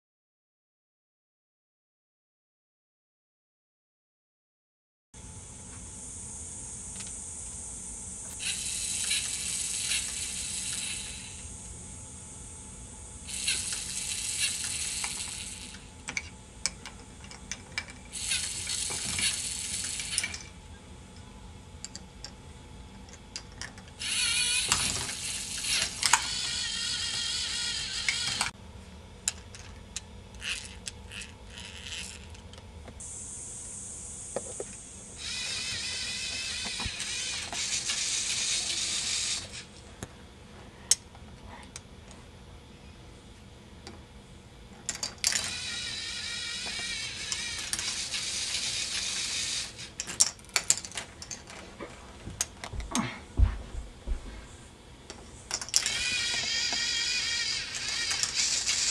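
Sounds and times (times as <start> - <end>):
servo motor whirring: 8.3 - 11.6, 13.2 - 16.0, 18.1 - 20.5, 24.0 - 28.5, 30.4 - 32.4, 34.4 - 39.7, 45.4 - 50.0, 55.8 - 58.9
plastic parts clicking and rattling: 44.9 - 45.7, 46.6 - 51.7, 55.1 - 58.9.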